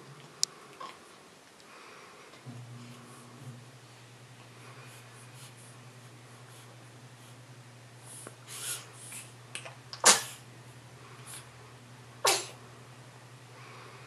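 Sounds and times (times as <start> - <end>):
baby huffing: 12.2 - 12.6.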